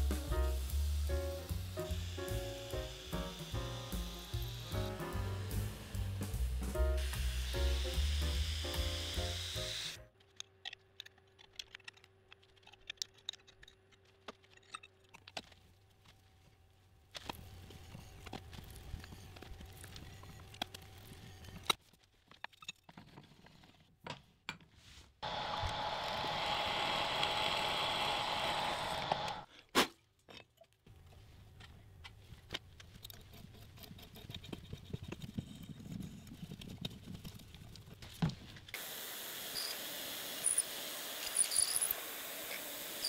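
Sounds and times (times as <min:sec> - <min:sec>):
drill cutting through steel plate: 0:00.1 - 0:10.0, 0:25.2 - 0:29.5, 0:38.8 - 0:43.0
handling noises with light ticks: 0:30.4 - 0:35.4.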